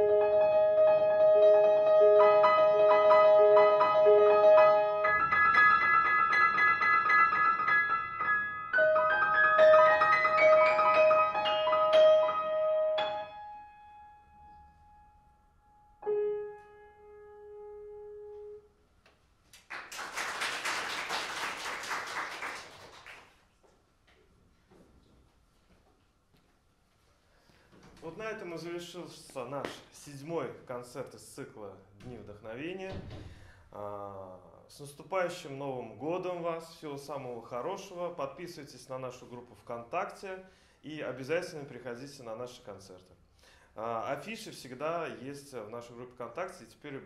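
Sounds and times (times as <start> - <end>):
grand piano solo: 0.0 - 14.8
audience clapping: 19.5 - 23.6.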